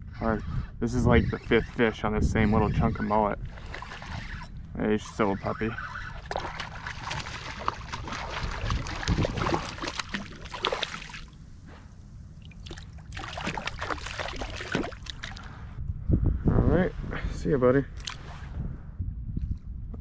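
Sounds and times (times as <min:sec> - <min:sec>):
fish splashing at water surface: 0:06.2 - 0:11.3, 0:12.4 - 0:15.5.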